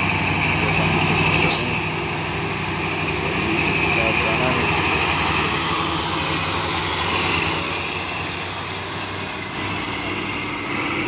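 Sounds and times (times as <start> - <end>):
dump truck diesel engine passing: 0.0 - 11.0
high-pitched whine: 3.0 - 11.0.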